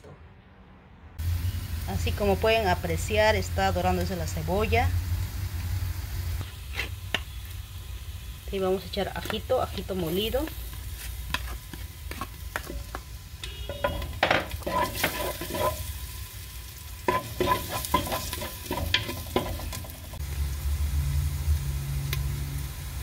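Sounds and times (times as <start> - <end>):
onion and garlic sizzling in oil: 1.2 - 23.0
wooden spoon scraping and knocking pot: 9.2 - 15.9, 17.1 - 20.2.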